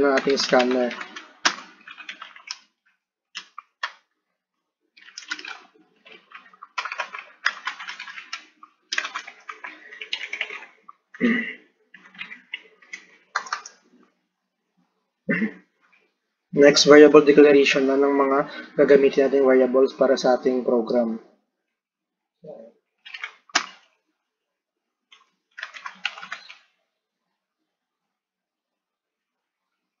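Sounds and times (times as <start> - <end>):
computer keyboard typing: 0.0 - 4.1, 5.0 - 13.8, 23.0 - 23.9, 25.1 - 26.7.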